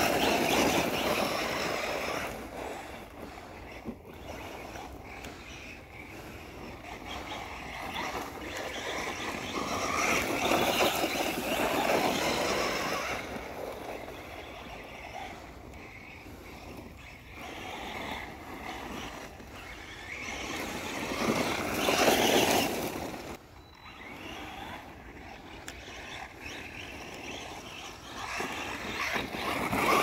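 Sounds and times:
toy car motor whining: 0.0s - 30.0s.

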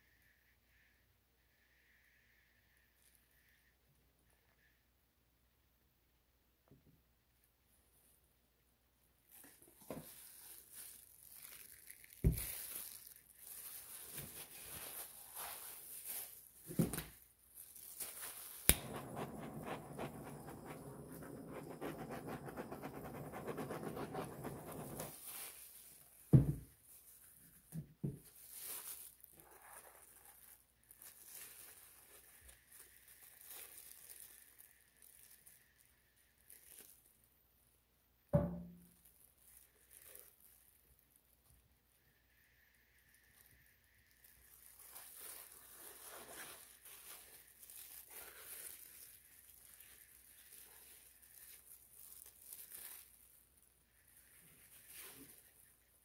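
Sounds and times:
gas torch hissing: 18.7s - 23.2s.

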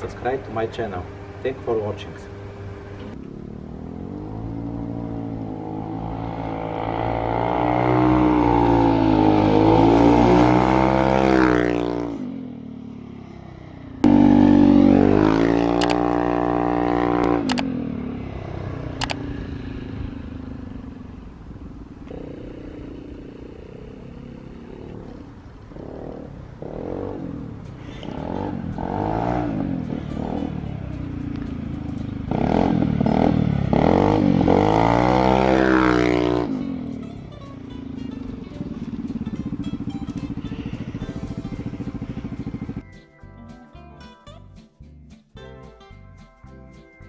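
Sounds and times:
scooter engine passing: 0.0s - 42.9s.

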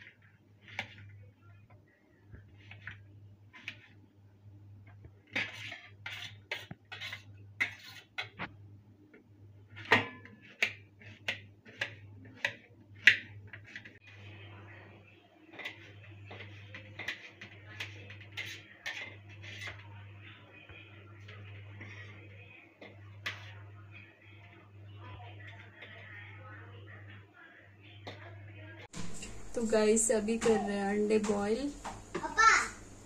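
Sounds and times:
knife chopping on metal plate: 5.3s - 8.5s, 9.8s - 13.9s
low steady hum: 27.8s - 32.2s.

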